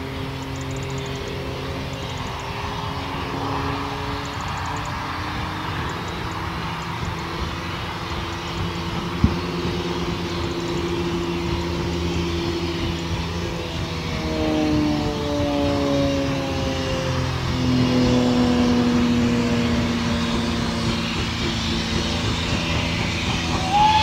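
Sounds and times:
steam locomotive running: 0:00.0 - 0:24.0
held whistle tones: 0:21.2 - 0:24.0.

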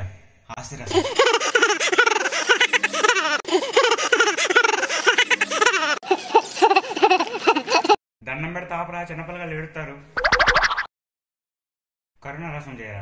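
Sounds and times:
man laughing loudly: 0:00.8 - 0:08.0.

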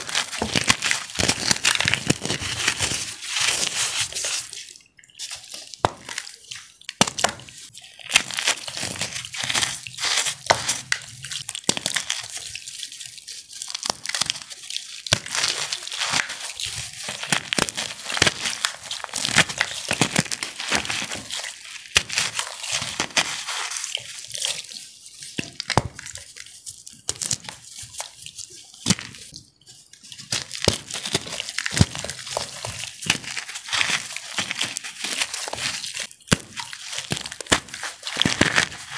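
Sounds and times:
water dripping: 0:00.0 - 0:38.9
wet crunching and crackling: 0:00.0 - 0:38.9.

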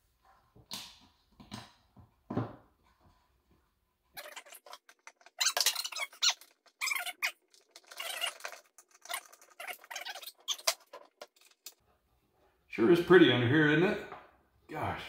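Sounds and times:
squeaking and scraping parts: 0:04.2 - 0:11.8.

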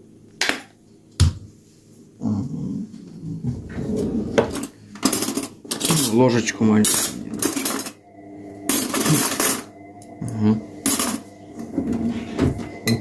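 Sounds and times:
cutlery rattling in a drawer: 0:04.5 - 0:06.2, 0:06.9 - 0:08.0.

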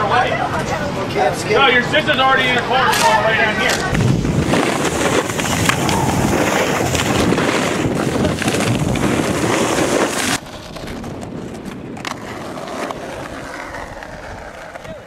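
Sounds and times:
wind rushing over microphone: 0:00.8 - 0:15.0
skateboard click: 0:02.8 - 0:15.0
snowboards scraping on snow: 0:03.7 - 0:10.7.

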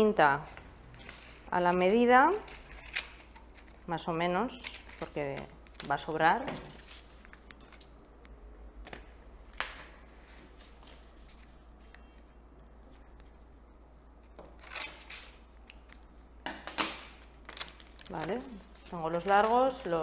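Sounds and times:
paper tape clicks and rustles: 0:16.8 - 0:20.0
crisp paper sounds: 0:17.4 - 0:20.0.

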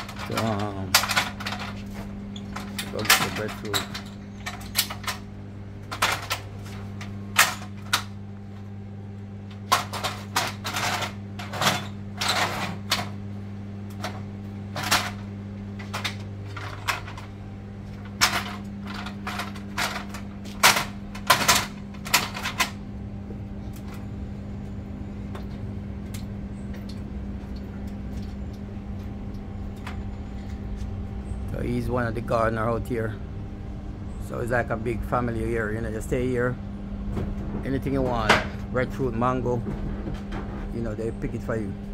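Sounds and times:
ladder metal clanks and clicks: 0:00.0 - 0:05.2
steady low hum: 0:00.0 - 0:41.9.

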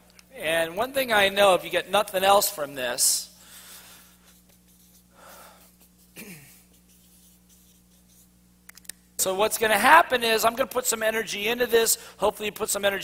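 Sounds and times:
steady low hum: 0:00.0 - 0:13.0
marker writing on paper: 0:04.2 - 0:05.1, 0:05.8 - 0:08.3.

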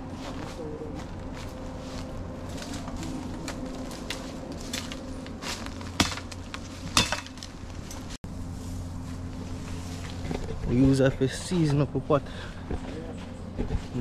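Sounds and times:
footsteps crackling through dry leaves: 0:00.0 - 0:11.8
steady low hum: 0:00.0 - 0:14.0
twigs cracking: 0:02.5 - 0:08.2.

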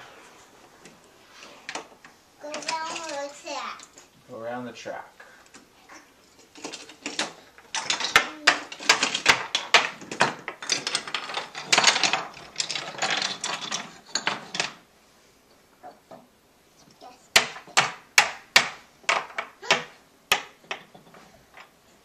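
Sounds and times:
toy trains clattering on wooden track: 0:01.6 - 0:04.1, 0:05.5 - 0:14.8, 0:16.9 - 0:21.8.

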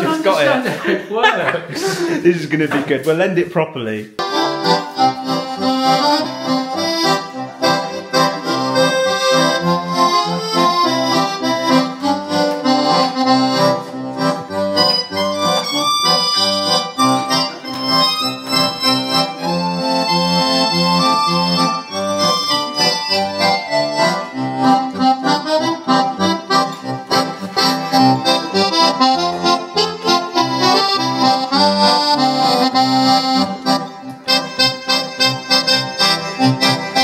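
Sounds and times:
piano accordion playing tune: 0:04.2 - 0:37.0.

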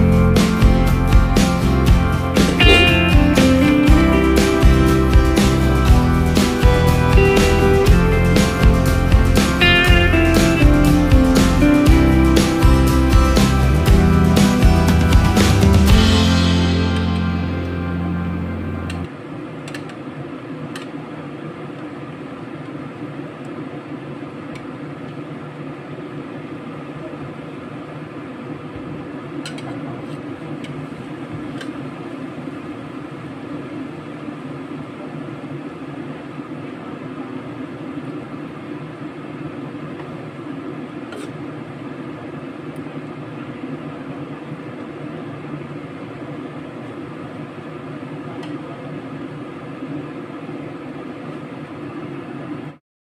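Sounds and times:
stove burner hiss and rumble: 0:15.7 - 0:52.8.

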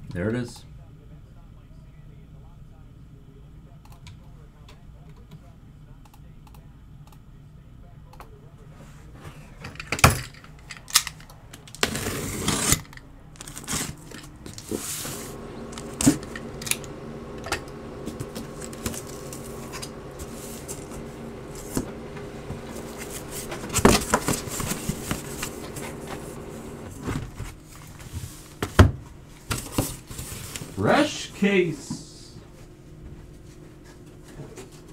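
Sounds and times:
low steady hum: 0:00.1 - 0:34.9
cardboard scraping: 0:11.8 - 0:28.8.

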